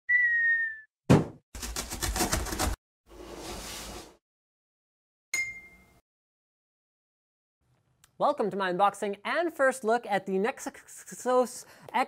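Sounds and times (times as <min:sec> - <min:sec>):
falling whistle: 0:00.1 - 0:00.9
sharp thump: 0:01.1 - 0:01.4
bright ding: 0:05.4 - 0:06.0.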